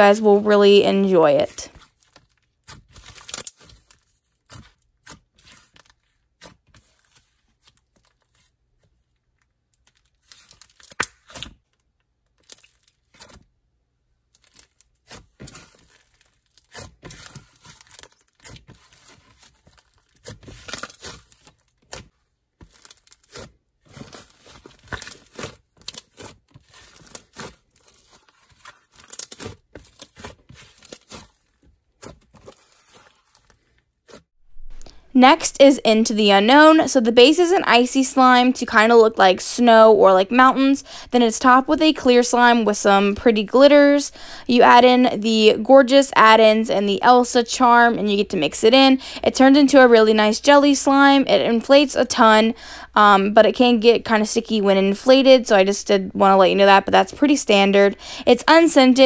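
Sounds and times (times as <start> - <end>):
slime crackling and popping: 1.7 - 8.5, 9.8 - 11.7, 14.4 - 34.8.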